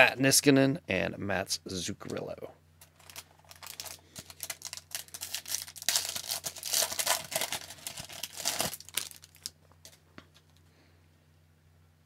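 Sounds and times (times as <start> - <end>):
foil wrapper crinkling and tearing: 2.9 - 10.0.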